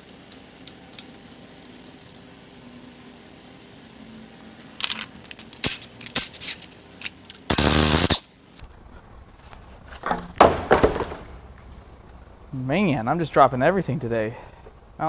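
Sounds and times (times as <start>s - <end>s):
metal part clattering: 4.7s - 7.5s.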